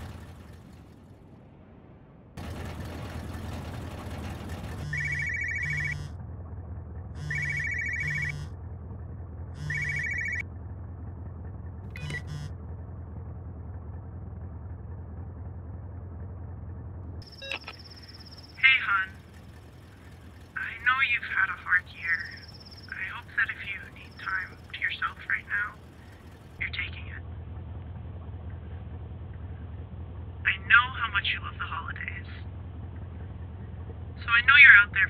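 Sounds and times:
road noise: 0.0s - 35.0s
van engine hum: 0.0s - 35.0s
mobile phone ringing: 4.8s - 6.1s, 7.2s - 8.5s, 9.6s - 10.4s, 12.0s - 12.5s, 17.2s - 19.1s
phone double chirp: 7.2s - 8.5s, 9.6s - 10.4s, 17.2s - 18.6s.

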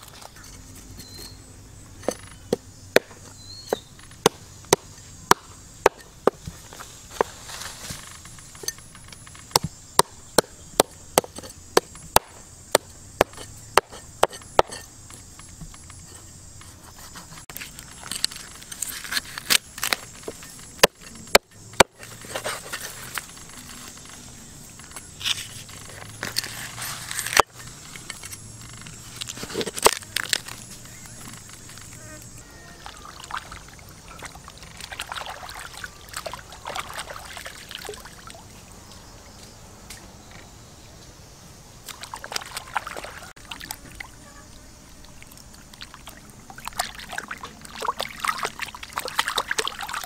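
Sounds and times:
rustling and scraping: 0.0s - 5.3s, 5.9s - 9.9s, 13.2s - 32.8s.

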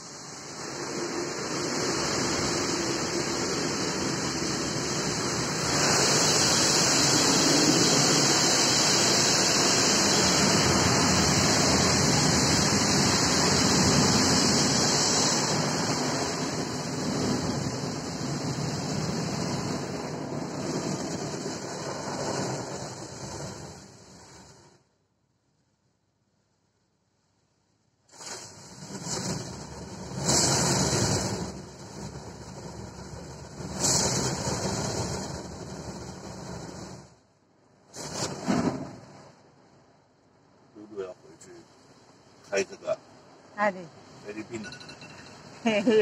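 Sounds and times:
car wash water jets and brushes: 0.0s - 24.7s, 28.1s - 37.2s, 37.9s - 39.2s.

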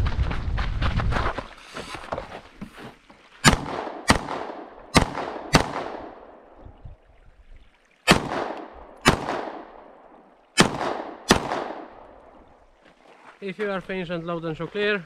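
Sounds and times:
pistol shots with echo: 3.4s - 6.2s, 8.1s - 9.7s, 10.6s - 11.9s.

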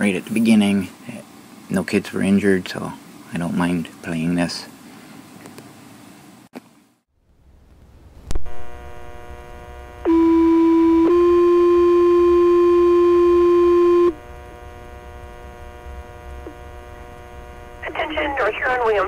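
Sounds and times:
radio hum: 13.6s - 19.0s.

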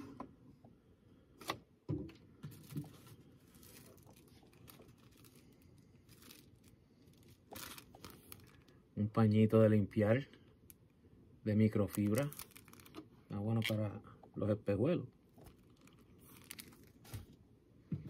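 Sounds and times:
plastic bag crinkling: 2.5s - 8.8s, 11.6s - 13.8s, 15.3s - 17.4s.

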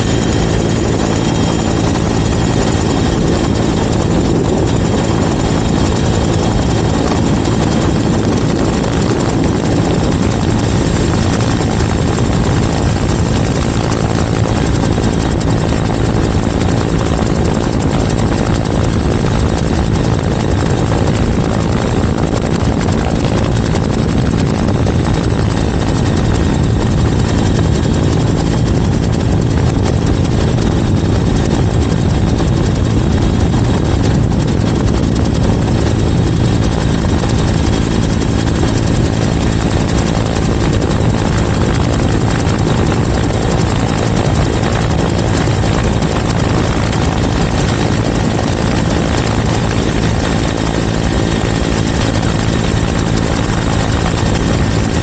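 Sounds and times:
helicopter rotor and engine: 0.0s - 55.0s.

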